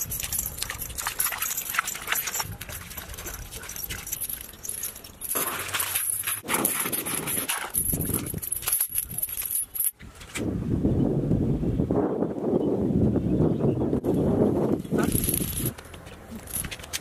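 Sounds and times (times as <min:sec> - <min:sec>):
bare feet splashing in mud: 0:00.0 - 0:08.8
steel chain clinking: 0:00.0 - 0:10.0, 0:14.9 - 0:17.0.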